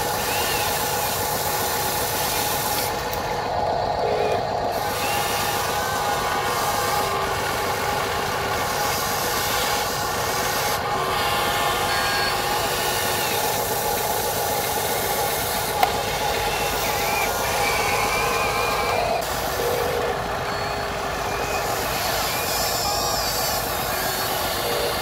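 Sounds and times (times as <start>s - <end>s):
electric motors whirring: 0.0s - 25.0s.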